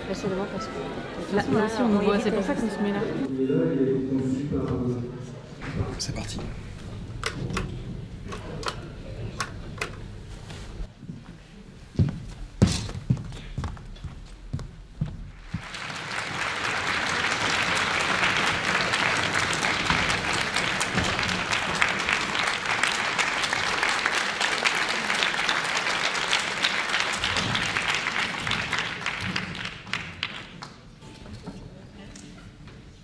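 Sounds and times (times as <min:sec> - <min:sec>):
audience applauding: 0:15.3 - 0:31.0.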